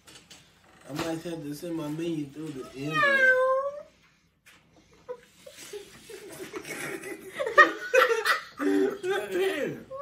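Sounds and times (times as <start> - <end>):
people laughing: 5.5 - 9.8.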